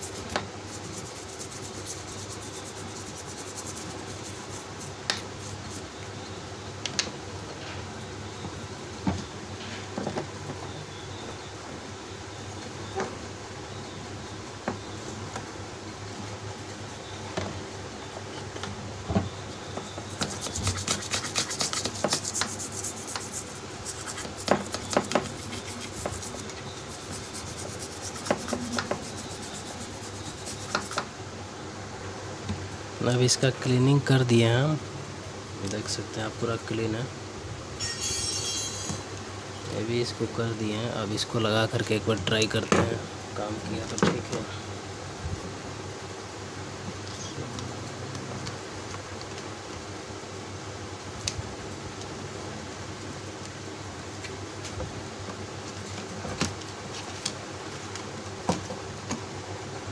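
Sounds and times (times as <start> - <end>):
brush scrubbing circuit board: 0.0 - 5.8, 20.1 - 31.0.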